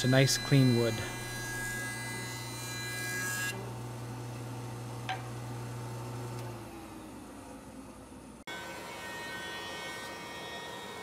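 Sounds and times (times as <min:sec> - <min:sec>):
jointer motor hum: 0:00.0 - 0:07.2.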